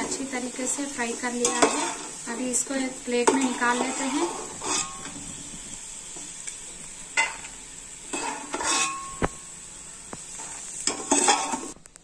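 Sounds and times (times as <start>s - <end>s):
oil sizzling: 0.0s - 12.0s
slotted spoon scraping steel pot: 3.6s - 5.1s, 8.1s - 9.1s.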